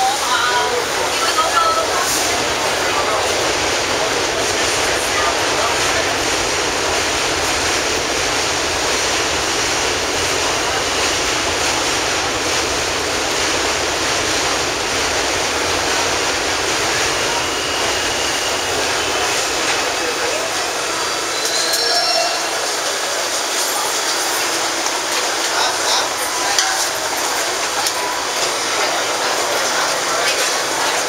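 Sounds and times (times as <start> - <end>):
faint high tone: 20.9 - 24.6.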